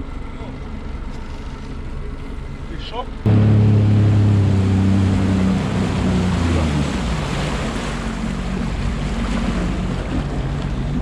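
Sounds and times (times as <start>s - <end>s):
jet ski engine: 0.0s - 11.0s
water rushing along hull: 0.0s - 11.0s.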